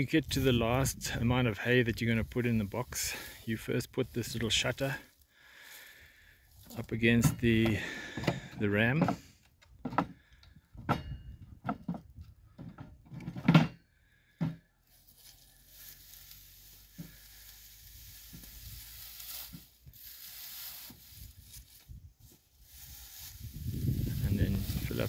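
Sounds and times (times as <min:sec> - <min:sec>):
dry hay crackling and rustling: 0:00.0 - 0:07.6, 0:14.8 - 0:25.0
sharp wooden knocks: 0:08.2 - 0:10.2.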